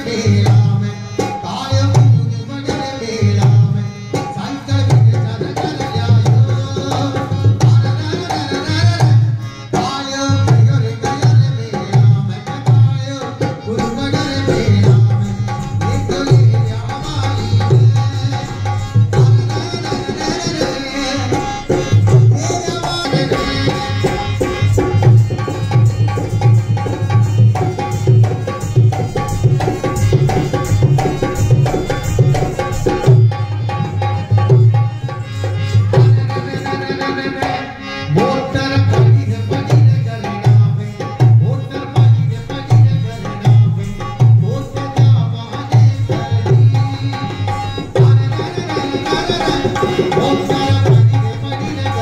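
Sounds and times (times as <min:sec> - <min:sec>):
hand drum beat: 0:21.7 - 0:35.2, 0:47.8 - 0:51.2.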